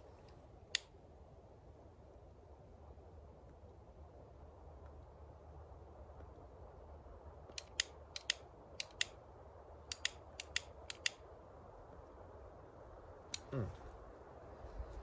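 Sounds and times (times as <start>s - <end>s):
lighter clicking: 7.6s - 9.2s, 9.9s - 11.2s.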